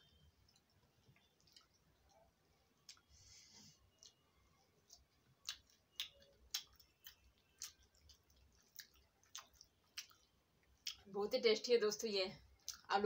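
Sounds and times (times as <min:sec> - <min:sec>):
chewing mouth clicks: 0:00.4 - 0:03.1, 0:03.9 - 0:11.1.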